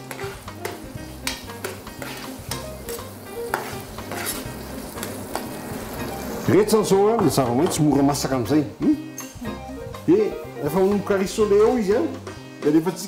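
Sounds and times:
spatula scraping pan: 0.0s - 6.5s
vegetables sizzling in frying pan: 0.0s - 12.6s.

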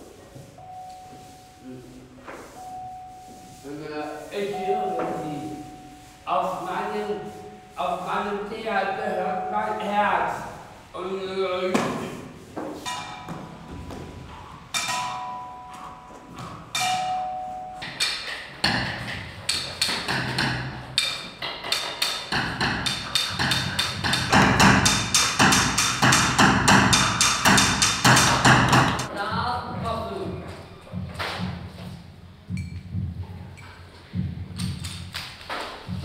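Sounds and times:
sharp percussion knocks: 12.8s - 15.8s, 16.5s - 29.4s
ringing pitched percussion strikes: 12.9s - 13.9s.

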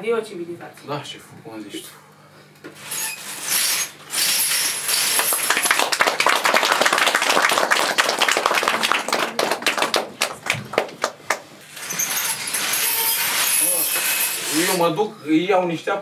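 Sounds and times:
audience applauding: 5.0s - 11.5s.

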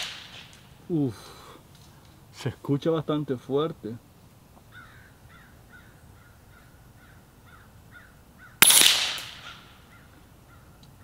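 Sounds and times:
air rifle shot: 0.0s - 0.6s, 8.6s - 9.7s
faint short bird calls: 4.6s - 8.6s.

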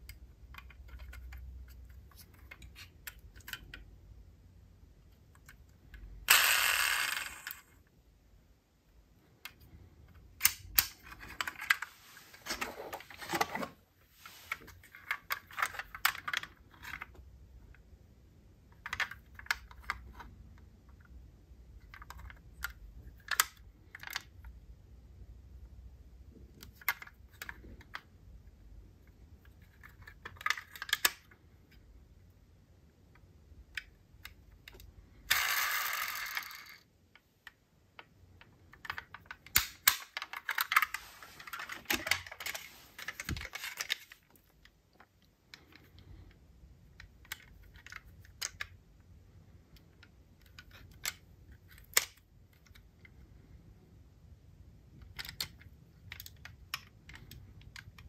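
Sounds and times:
metal toy cars clicking: 6.2s - 7.8s, 33.8s - 36.9s.

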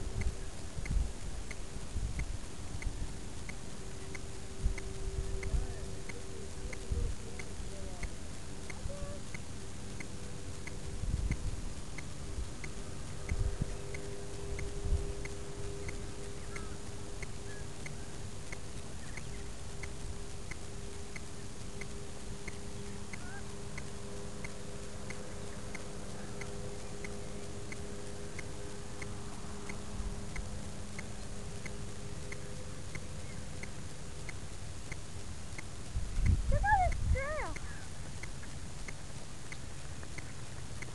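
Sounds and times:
faint repeating tick: 0.0s - 40.9s
low buzzing hum: 0.0s - 40.9s
wind thumps on microphone: 11.0s - 12.5s, 35.9s - 37.4s.

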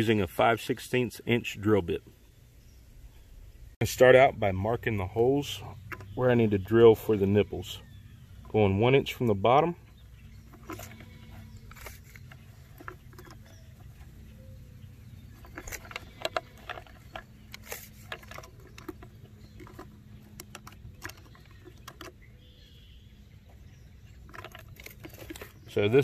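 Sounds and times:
light taps clicks and scratches: 10.4s - 14.5s, 15.2s - 22.2s, 23.5s - 25.8s.

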